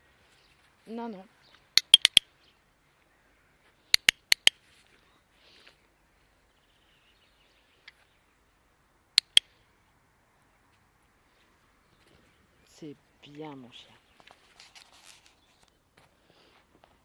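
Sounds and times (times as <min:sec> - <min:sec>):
training clicker clicks: 0:01.8 - 0:02.3, 0:03.9 - 0:04.6, 0:09.2 - 0:09.5.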